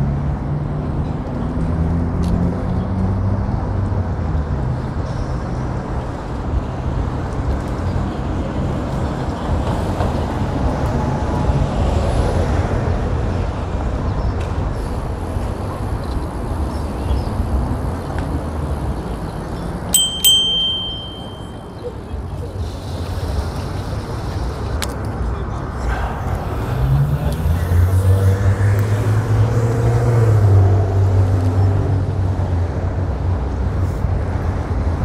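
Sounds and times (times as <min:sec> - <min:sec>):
road rumble: 0:00.0 - 0:35.0
sharp high ringing strikes: 0:20.0 - 0:21.8.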